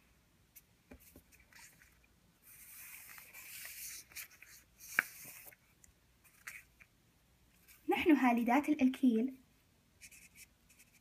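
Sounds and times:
marker scratching on paper: 10.0 - 11.0.

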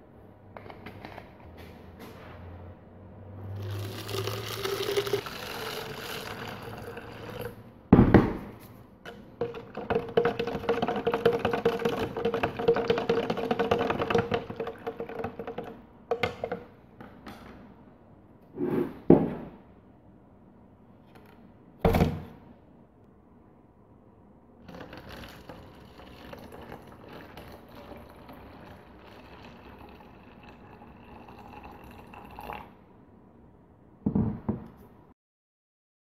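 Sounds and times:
water pouring into plastic bottle: 3.6 - 7.6, 9.4 - 15.7, 24.6 - 32.6.

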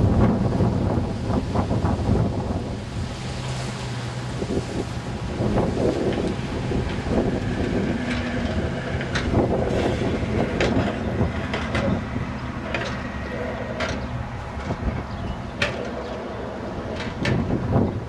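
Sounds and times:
truck engine rumbling: 0.0 - 18.0
wheels clicking over rail joints: 5.3 - 18.0.

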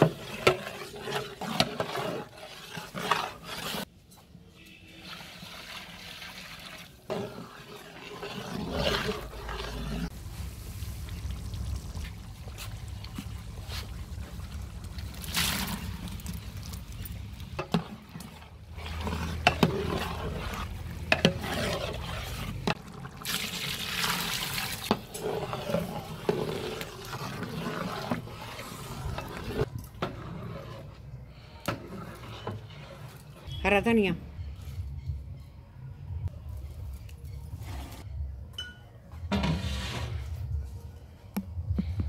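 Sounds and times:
ladle scraping metal pot: 0.0 - 10.2, 12.5 - 33.6, 37.5 - 38.1, 39.3 - 40.5
sauce bubbling: 5.3 - 29.7.

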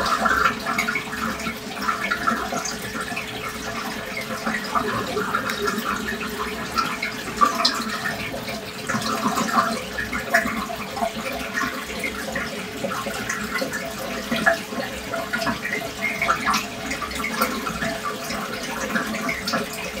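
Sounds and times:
steady hum: 0.0 - 9.6
aquarium water trickling: 0.0 - 20.0
water drips and plops: 0.0 - 20.0.

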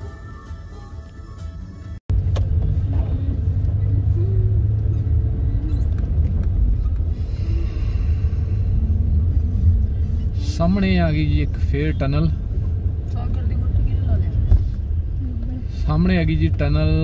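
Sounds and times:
car cabin road rumble: 0.1 - 17.0.

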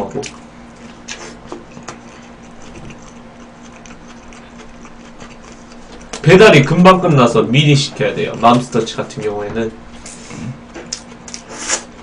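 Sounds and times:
person chewing food: 0.2 - 6.2, 10.4 - 12.0.

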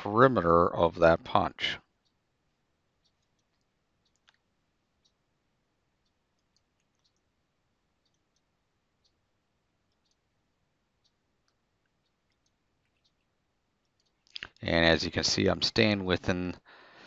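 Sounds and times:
computer mouse clicks: 3.0 - 5.2, 6.0 - 7.3, 8.0 - 9.2, 9.8 - 10.3, 11.0 - 14.6.

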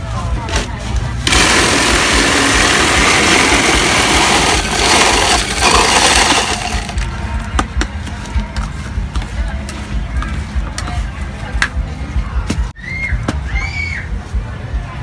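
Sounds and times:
ice shaver grinding ice: 1.2 - 7.1.

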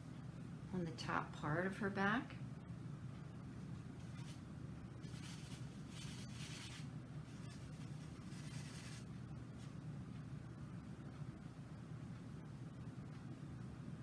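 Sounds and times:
steady low hum: 0.0 - 14.0
paintbrush scrubbing on plastic: 5.0 - 9.0.

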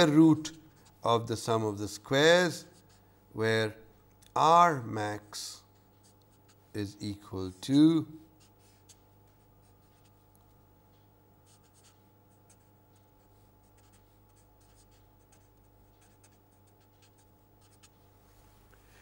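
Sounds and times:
steady low hum: 0.0 - 19.0
marker writing on paper: 11.5 - 18.0.

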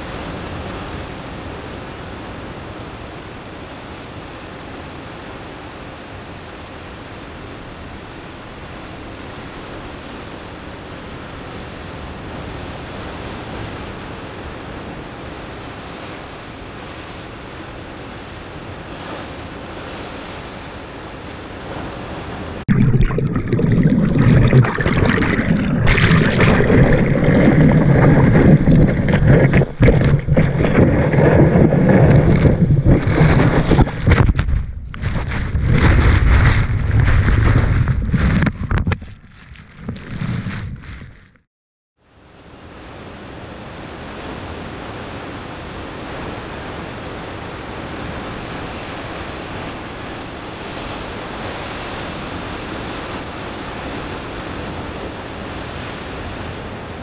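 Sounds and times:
ocean surf rushing: 0.0 - 34.4
wind buffeting microphone: 23.2 - 39.0.

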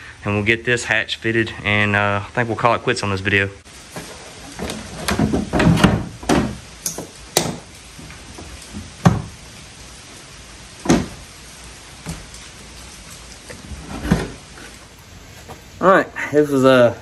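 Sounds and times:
plastic hatch knocking and clattering: 4.6 - 6.6.

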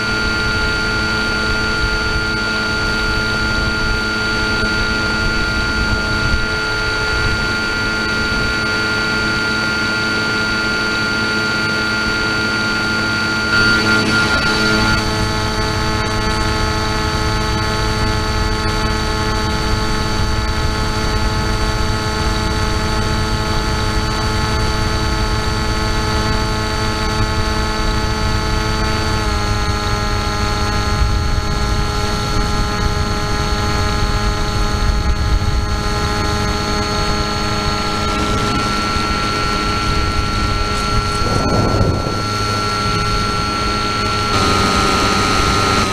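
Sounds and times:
rushing wind noise: 0.0 - 9.6, 30.8 - 45.9
model aircraft motor whine: 0.0 - 45.9.

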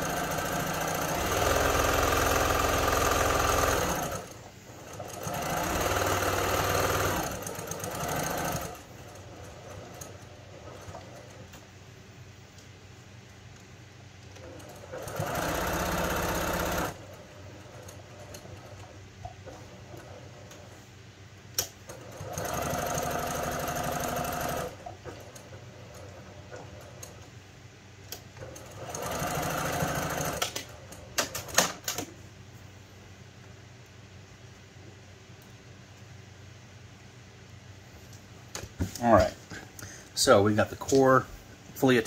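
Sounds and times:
sewing machine stitching: 0.0 - 11.5, 14.4 - 20.7, 21.6 - 27.2, 28.3 - 32.1.

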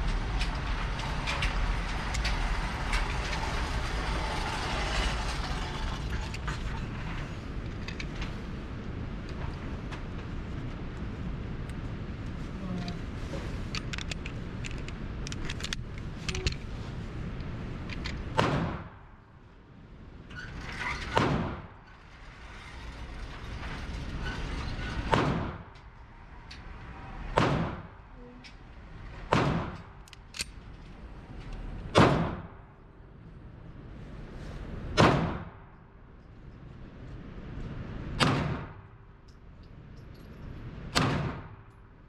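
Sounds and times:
target carrier running with clicks: 13.7 - 16.7
gunshots echoing indoors: 18.3 - 19.2, 27.3 - 28.0, 29.3 - 30.0, 31.9 - 32.8, 35.0 - 35.7, 38.1 - 38.9, 40.9 - 41.8.

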